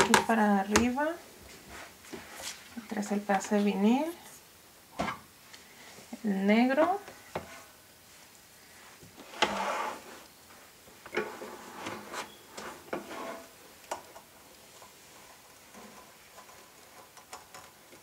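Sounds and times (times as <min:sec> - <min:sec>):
plastic scraping and rubbing: 0:09.2 - 0:10.3, 0:11.1 - 0:13.6.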